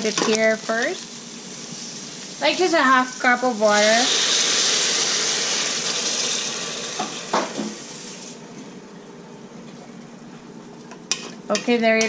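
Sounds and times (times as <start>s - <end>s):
water hissing in hot oil: 0.0s - 8.4s.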